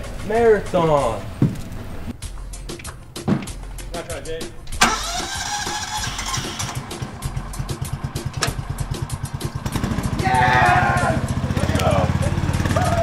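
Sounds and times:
small engine puttering: 4.8s - 13.0s
person calling out: 10.2s - 12.2s.

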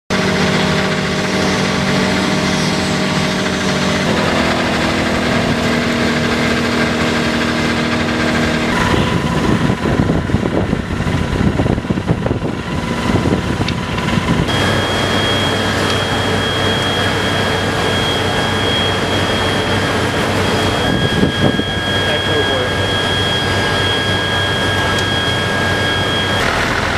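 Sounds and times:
fire engine pump running: 0.1s - 26.9s
high steady whine: 0.1s - 26.9s.

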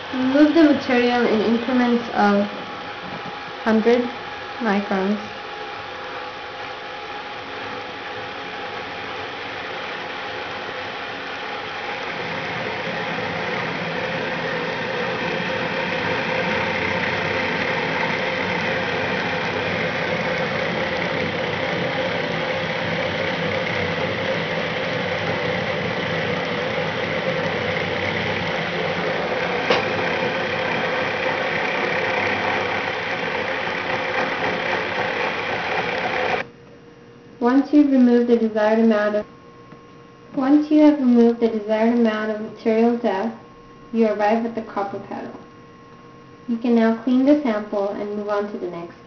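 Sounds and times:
milling machine whirring: 0.0s - 36.6s.

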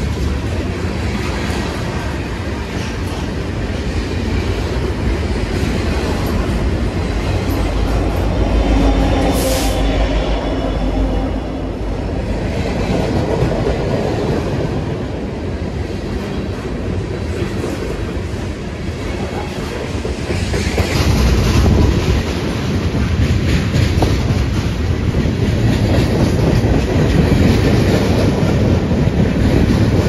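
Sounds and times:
train wheels clattering on rails: 0.0s - 10.8s, 11.7s - 30.0s
diesel locomotive engine drone: 0.0s - 30.0s.

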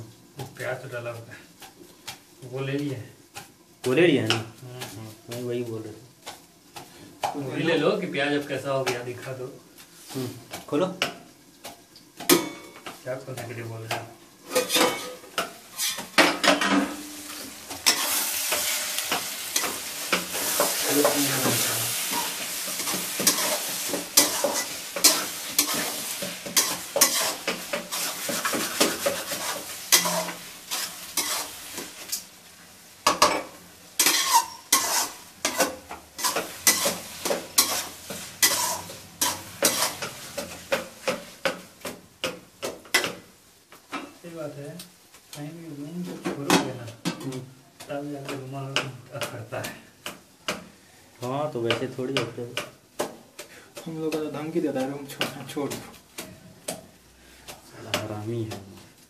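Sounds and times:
onions sizzling in oil: 0.0s - 59.0s
ladle scraping a pan: 14.4s - 32.2s, 34.0s - 40.8s.

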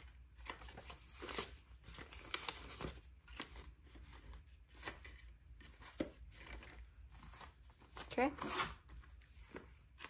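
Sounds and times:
banknotes rustling: 0.0s - 10.0s.

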